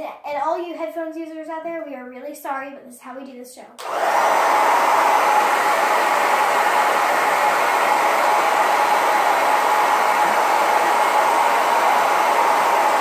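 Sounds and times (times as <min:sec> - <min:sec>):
hair dryer air rush: 0:03.8 - 0:13.0.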